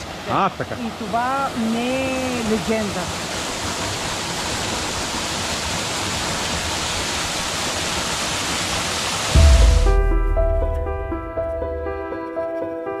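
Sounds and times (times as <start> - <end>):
waterfall rushing: 0.0 - 11.9
music with low bass: 9.4 - 11.8.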